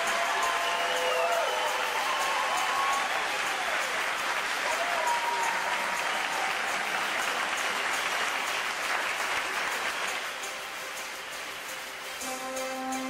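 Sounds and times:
audience applauding: 0:00.0 - 0:13.0
faint music: 0:00.0 - 0:13.0.

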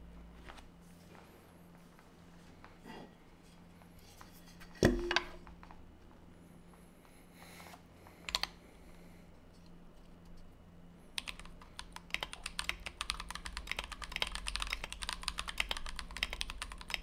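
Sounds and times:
mechanical keyboard clicks: 0:11.2 - 0:17.0.

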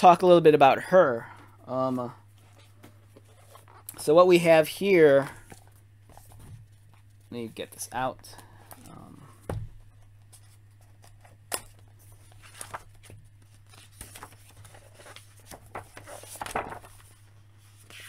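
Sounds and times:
pages rustling: 0:09.9 - 0:18.0.

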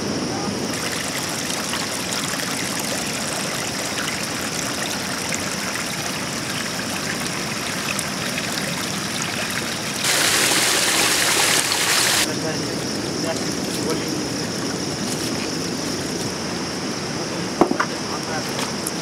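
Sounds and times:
splashing rush of water: 0:00.7 - 0:16.3
river water rushing over rocks: 0:06.4 - 0:12.3.

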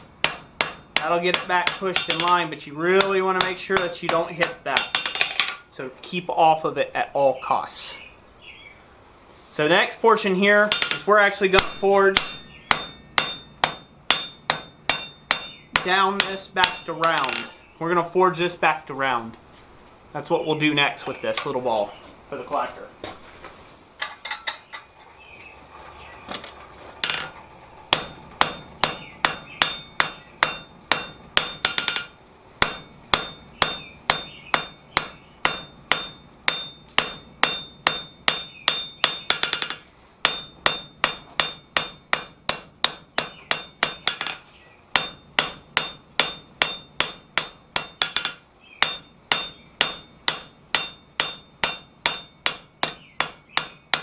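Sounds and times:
hammer striking steel on anvil: 0:00.0 - 0:05.6, 0:10.7 - 0:17.6, 0:27.0 - 0:54.0.

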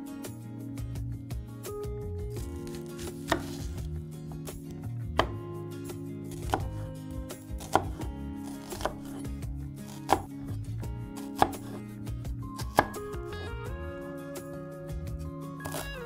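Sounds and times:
soft background music: 0:00.0 - 0:16.0
knife chopping on cutting board: 0:02.4 - 0:04.4, 0:05.1 - 0:05.4, 0:06.3 - 0:10.6, 0:11.2 - 0:11.9, 0:12.6 - 0:13.2, 0:15.6 - 0:15.9.

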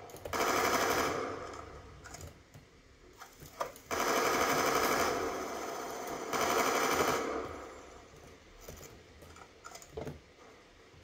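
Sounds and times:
automatic rifle fire: 0:00.0 - 0:01.7, 0:03.9 - 0:07.7.

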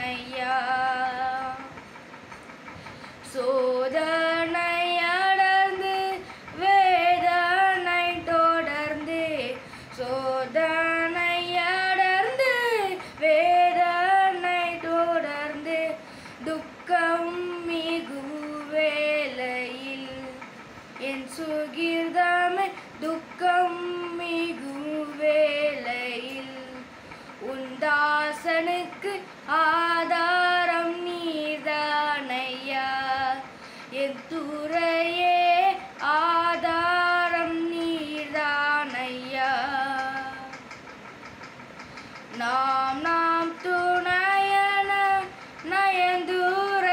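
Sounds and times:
boy singing unaccompanied: 0:00.0 - 0:01.8, 0:03.2 - 0:40.7, 0:42.2 - 0:46.9.

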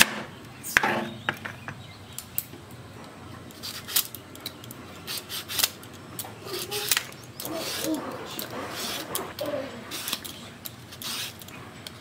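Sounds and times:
knife clicks and scrapes: 0:03.5 - 0:12.0.

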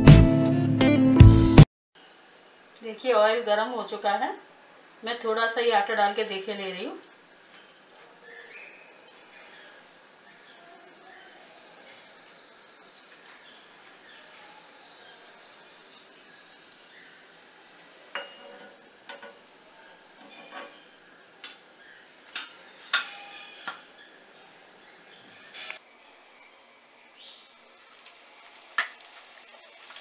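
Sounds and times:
hot oil sizzling faintly: 0:03.8 - 0:23.0, 0:25.5 - 0:30.0
metal spoon clinking against pan: 0:18.1 - 0:19.4.

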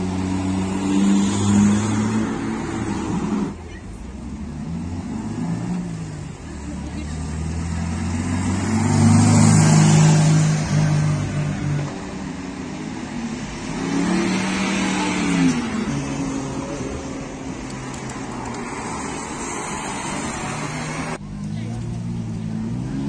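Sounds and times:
car driving past: 0:04.5 - 0:11.9.

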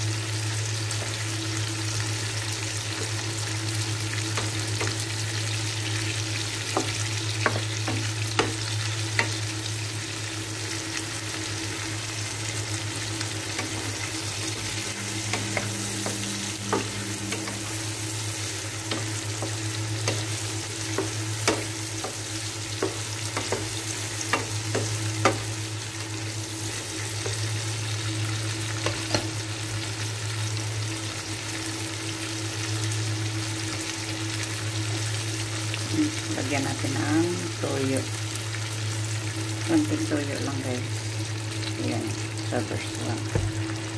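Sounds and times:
low hum: 0:00.0 - 0:31.0
shrimp sizzling in oil: 0:00.0 - 0:43.9.

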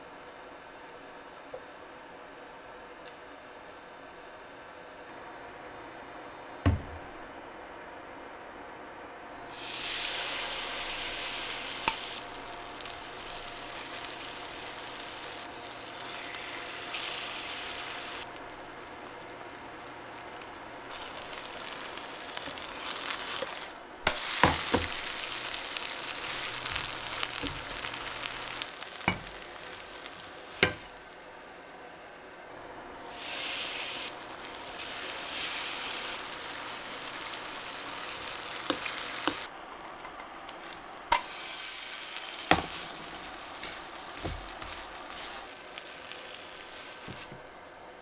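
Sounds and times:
batter sizzling in oil: 0:09.5 - 0:32.2, 0:33.0 - 0:47.6.

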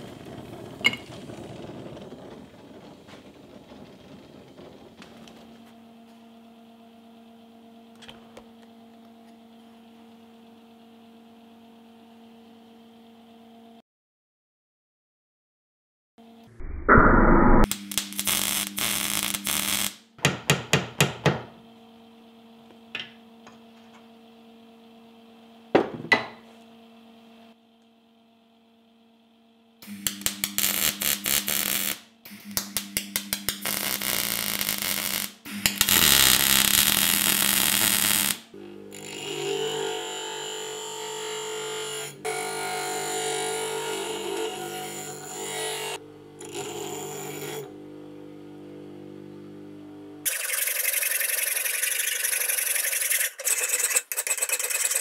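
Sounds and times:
welder humming: 0:16.5 - 0:20.1, 0:29.8 - 0:53.4
welder arc crackling: 0:17.2 - 0:20.0, 0:29.9 - 0:38.5
bench grinder grinding: 0:32.6 - 0:48.0, 0:50.2 - 0:55.0.

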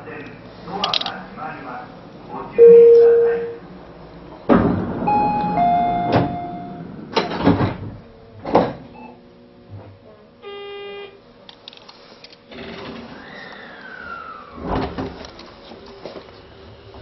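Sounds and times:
sharp thuds of sliding doors: 0:04.4 - 0:09.0, 0:12.5 - 0:15.8
two-note falling chime: 0:05.1 - 0:06.8
short buzzer: 0:05.1 - 0:06.9, 0:10.4 - 0:11.2.

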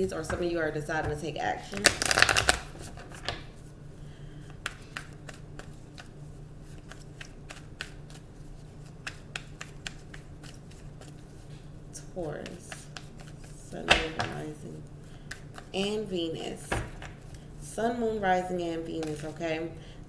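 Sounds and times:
faint low hum: 0:00.0 - 0:20.0
cards shuffling: 0:04.5 - 0:11.4, 0:12.3 - 0:14.6.

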